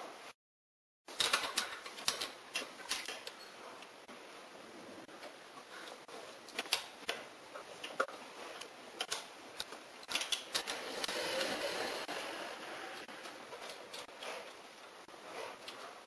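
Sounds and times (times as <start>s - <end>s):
metal tools clicking together: 9.0s - 10.8s.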